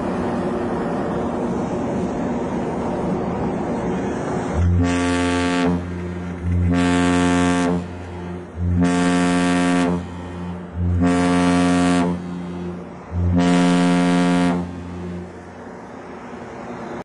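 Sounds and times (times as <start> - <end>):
ship horn short blasts: 4.6 - 15.4.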